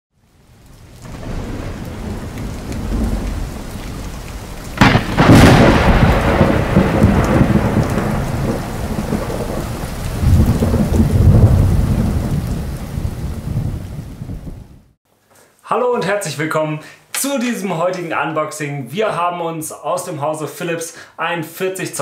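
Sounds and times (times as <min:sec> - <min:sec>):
rain hissing: 0:00.2 - 0:22.0
thunder rumbling: 0:00.3 - 0:15.0.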